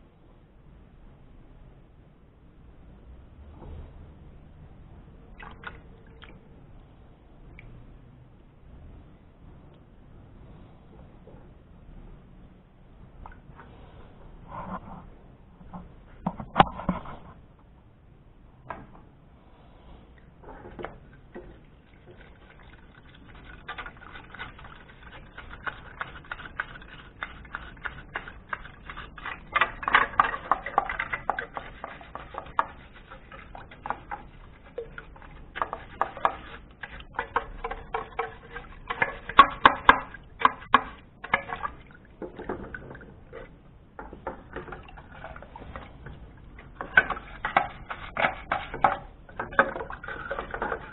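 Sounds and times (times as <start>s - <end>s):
water splashing: 21.2s - 43.6s, 44.2s - 50.9s
plastic brush scrubbing plastic: 21.6s - 42.0s, 43.2s - 50.9s.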